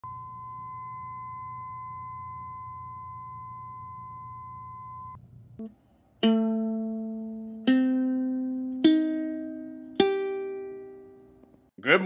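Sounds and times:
tuning fork ringing tone: 0.0 - 5.2
ukulele string plucked: 5.6 - 11.2.

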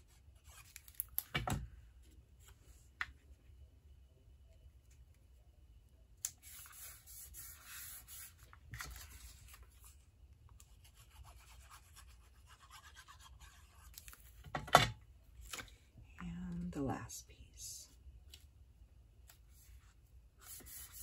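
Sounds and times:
paper rustling and scraping: 6.4 - 10.0.

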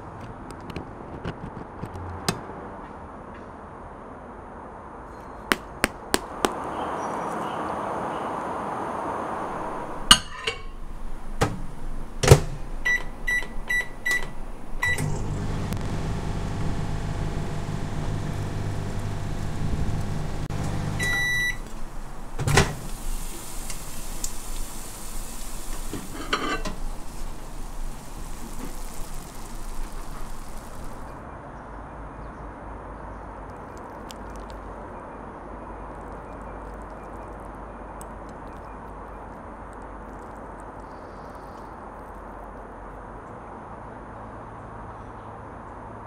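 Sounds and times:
microwave oven humming: 9.4 - 31.2
plate clattering: 10.1 - 10.8, 25.8 - 26.8
microwave door clicking: 11.4 - 15.3
keypad beeps: 12.8 - 15.1, 21.0 - 21.6
microwave end beep: 12.8 - 31.0.

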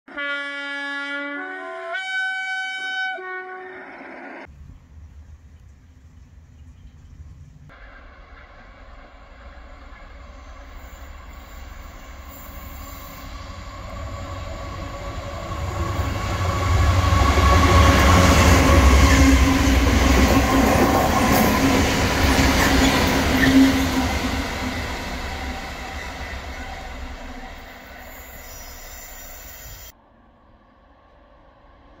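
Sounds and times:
diesel locomotive engines droning: 3.8 - 32.0
train wheel rumble: 4.5 - 29.9.

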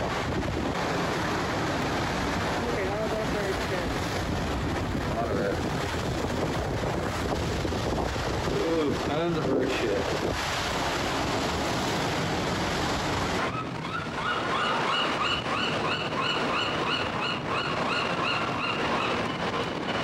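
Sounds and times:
surf breaking over rocks: 0.0 - 16.9.

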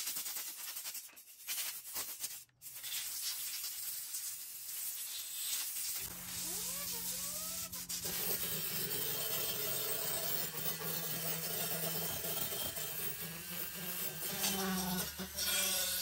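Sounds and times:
rotary tool wire wheel scraping metal: 6.6 - 16.0.

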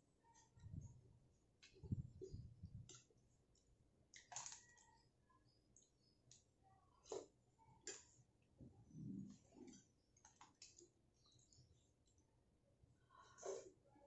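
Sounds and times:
slurp of noodles: 13.3 - 13.8.

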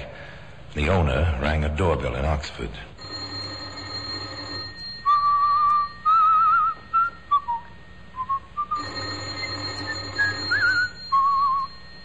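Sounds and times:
person whistling a tune: 5.1 - 8.8, 9.8 - 11.8.

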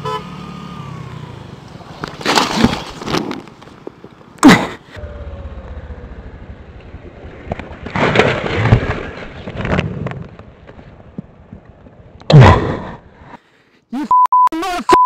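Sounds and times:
motorcycle engine rumbling: 0.0 - 8.0
motorcycle clattering and scraping: 1.6 - 4.4, 6.7 - 12.2.

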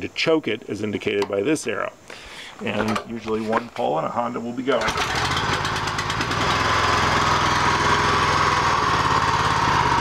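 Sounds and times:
single-cylinder petrol engine running: 4.8 - 10.0.

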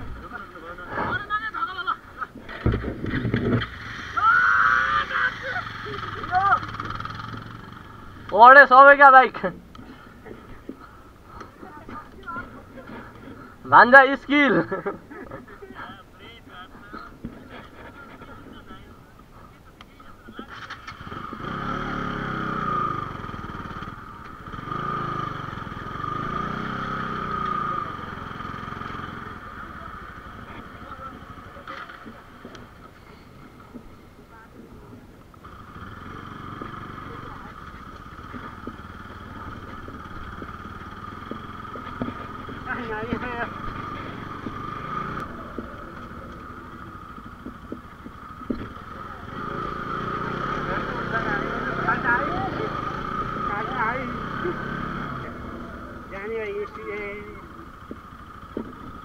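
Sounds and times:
engine hum: 0.0 - 59.0
motorcycle engine revving: 2.4 - 10.4, 20.4 - 33.9, 35.4 - 59.0.

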